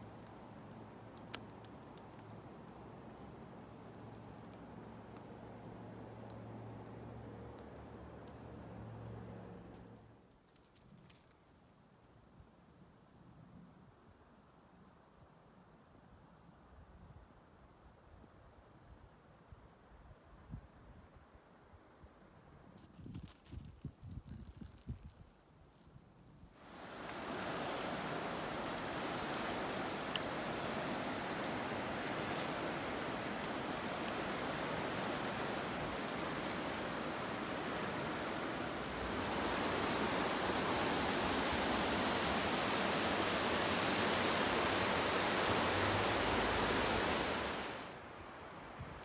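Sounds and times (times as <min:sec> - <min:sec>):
river water rushing over rapids: 0:26.6 - 0:48.8.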